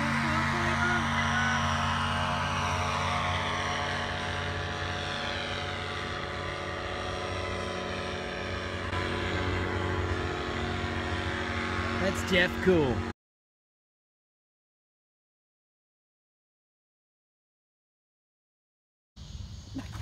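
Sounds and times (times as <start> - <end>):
paraglider engine and propeller droning: 0.0 - 13.2, 19.2 - 20.0.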